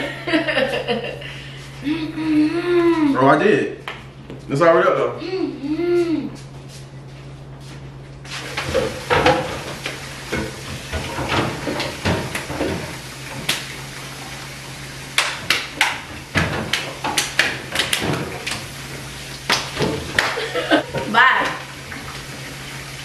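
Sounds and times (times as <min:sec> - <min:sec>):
hands clapping: 0:15.2 - 0:16.0, 0:19.5 - 0:20.5.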